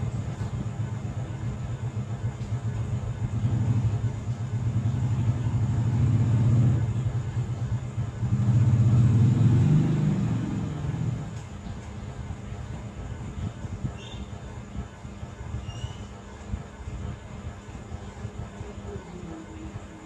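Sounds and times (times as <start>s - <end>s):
passing vehicle engine rumble: 3.2s - 11.5s.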